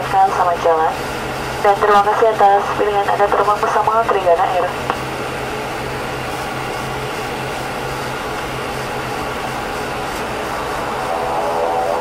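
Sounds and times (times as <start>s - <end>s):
turboprop cabin drone: 0.0s - 12.0s.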